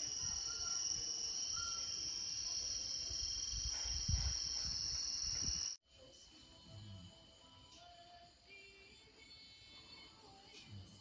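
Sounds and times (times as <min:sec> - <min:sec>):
night insects droning: 0:00.0 - 0:05.8.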